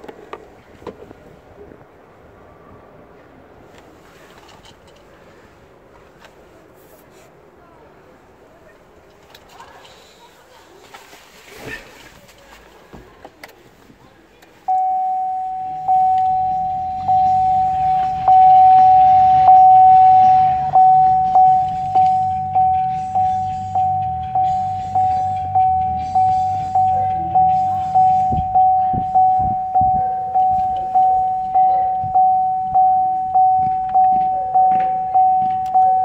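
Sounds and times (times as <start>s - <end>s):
car warning chime dinging: 14.6s - 36.0s
low hum: 14.7s - 36.0s.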